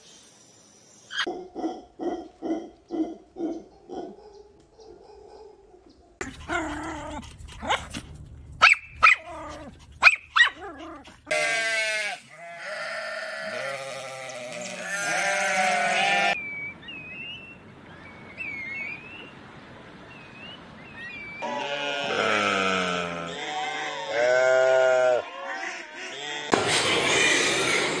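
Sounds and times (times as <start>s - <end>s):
animal crying: 9.0s - 16.4s, 21.4s - 26.5s
sheep bleating: 11.3s - 16.4s, 21.4s - 26.5s
plovers whistled calls: 16.4s - 19.4s, 20.1s - 21.5s.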